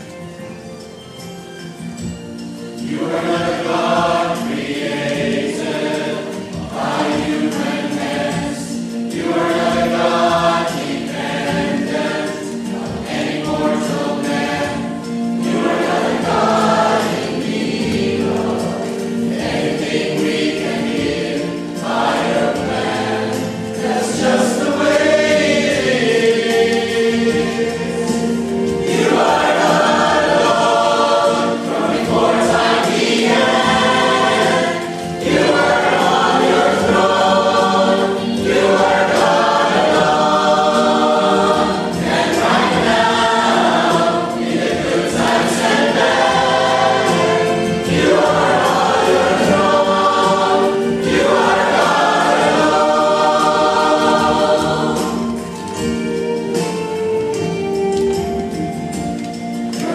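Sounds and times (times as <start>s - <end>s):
church choir singing a hymn: 0.0s - 59.9s.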